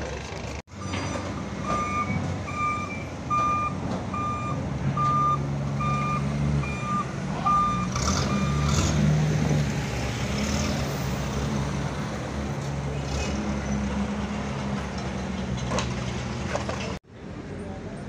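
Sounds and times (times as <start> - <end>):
forklift engine running: 0.1 - 17.0
reversing alarm beeping: 0.7 - 8.9.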